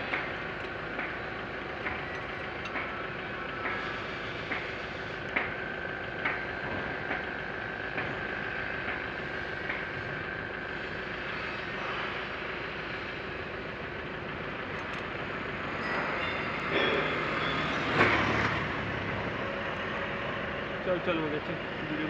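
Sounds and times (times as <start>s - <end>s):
engine parts clattering: 0.0s - 10.3s, 13.4s - 19.0s.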